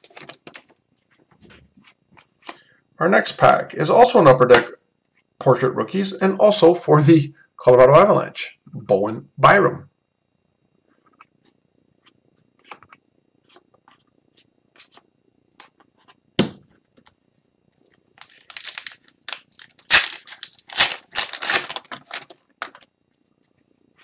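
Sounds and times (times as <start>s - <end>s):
foil wrapper tearing and crinkling: 18.1s - 22.9s.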